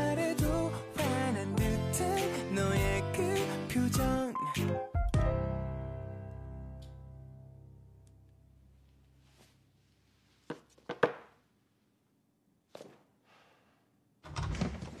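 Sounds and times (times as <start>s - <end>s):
door pushed open with thud: 14.2s - 15.0s.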